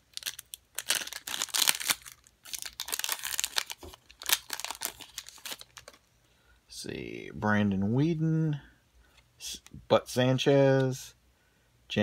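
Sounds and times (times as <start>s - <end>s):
foil wrapper crinkling: 0.0s - 6.0s.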